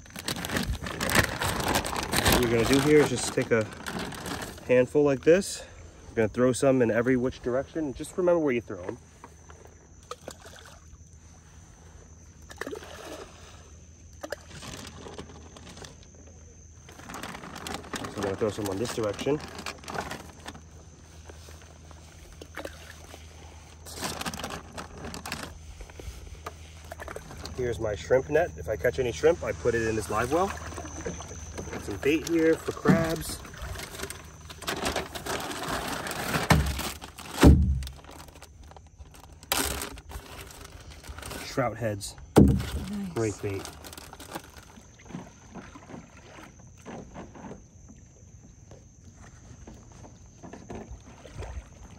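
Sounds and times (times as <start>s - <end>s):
plastic bags crinkling: 0.0s - 4.9s, 16.8s - 21.8s, 23.8s - 25.6s, 28.8s - 44.9s
shallow water sloshing: 0.0s - 6.3s, 7.0s - 51.9s
water splashes: 10.0s - 11.1s, 12.4s - 15.2s, 21.1s - 24.8s, 25.5s - 36.8s, 42.4s - 47.2s, 49.0s - 51.9s
dull thumps: 36.2s - 38.3s, 42.2s - 42.9s.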